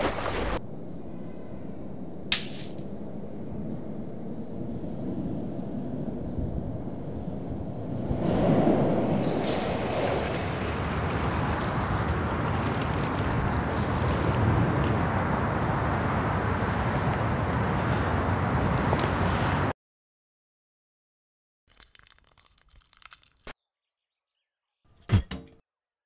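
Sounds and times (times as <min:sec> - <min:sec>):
wind-like rushing noise: 0:00.6 - 0:19.7.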